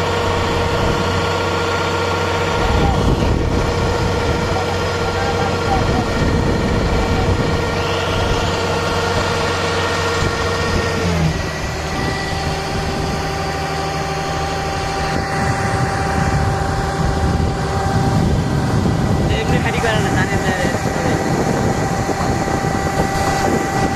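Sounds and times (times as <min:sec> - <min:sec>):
combine harvester engine running: 0:00.0 - 0:23.9
grain pouring from auger: 0:00.0 - 0:23.9.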